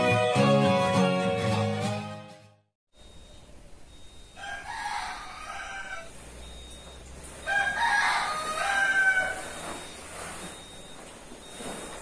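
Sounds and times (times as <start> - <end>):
rooster crowing: 4.4 - 6.2, 7.4 - 9.6.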